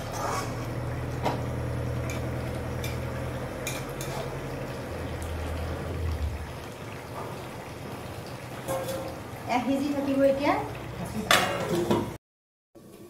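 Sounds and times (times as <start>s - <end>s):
metal spatula scraping wok: 0.0s - 0.8s, 3.6s - 4.4s.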